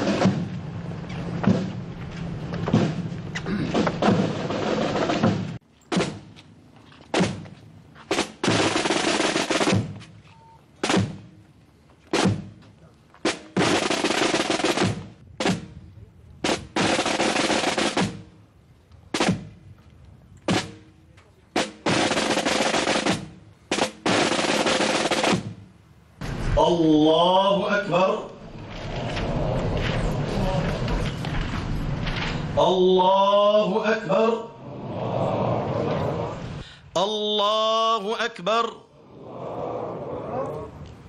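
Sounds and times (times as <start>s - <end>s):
military drums beating: 0.0s - 1.9s, 2.5s - 6.4s, 7.1s - 10.2s, 10.8s - 11.4s, 12.1s - 12.6s, 13.2s - 15.8s, 16.4s - 18.4s, 19.1s - 19.6s, 20.4s - 25.7s.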